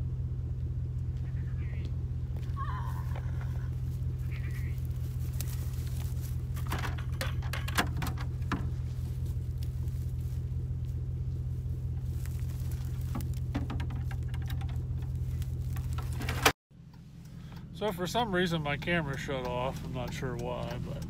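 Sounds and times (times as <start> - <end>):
steady low rumble: 0.0 - 21.0
goats bleating: 2.4 - 5.6.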